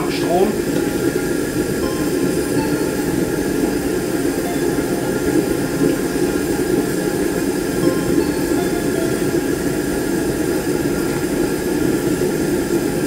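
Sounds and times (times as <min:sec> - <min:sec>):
gas forge burner rumbling: 0:00.0 - 0:13.0.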